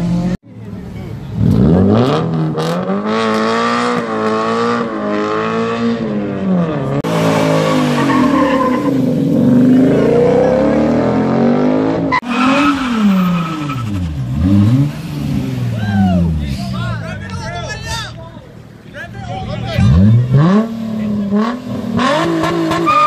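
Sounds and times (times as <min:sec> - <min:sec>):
car engine revving high: 0:01.4 - 0:16.6, 0:19.8 - 0:23.0
tyres spinning and squealing: 0:07.1 - 0:11.3, 0:12.0 - 0:18.2.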